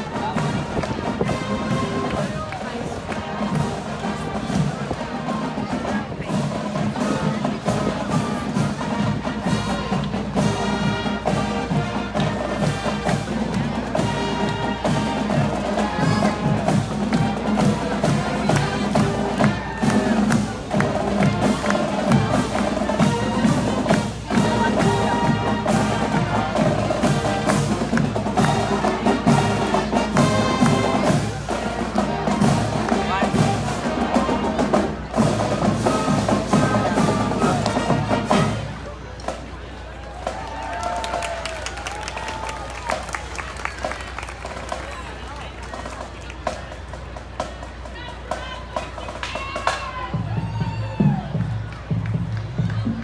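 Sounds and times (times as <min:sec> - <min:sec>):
steady drum beat: 0:00.0 - 0:38.8
marching band horns: 0:00.0 - 0:53.0.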